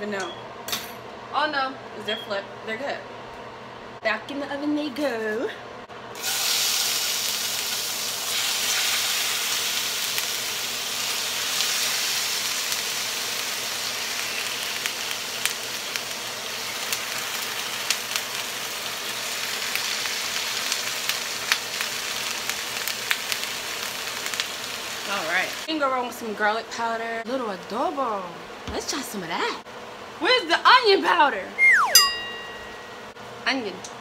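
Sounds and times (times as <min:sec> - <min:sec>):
chicken sizzling in hot oil: 0:06.2 - 0:25.7.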